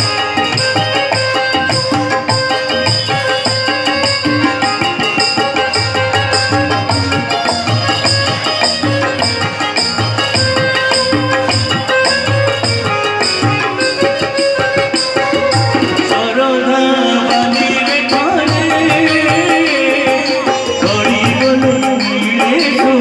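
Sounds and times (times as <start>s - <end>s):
harmonium melody: 0.0s - 23.0s
tabla rhythm: 0.0s - 23.0s.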